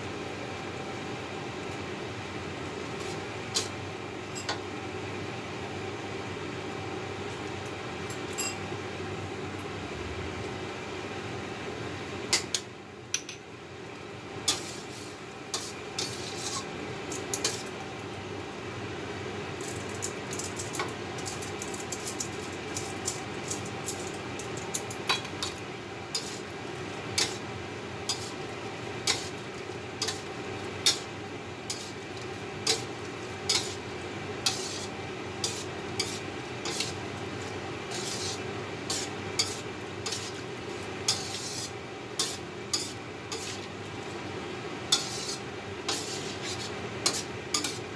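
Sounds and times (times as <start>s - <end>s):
steady background hum: 0.0s - 47.9s
metal spatula clinking on wok: 47.1s - 47.8s.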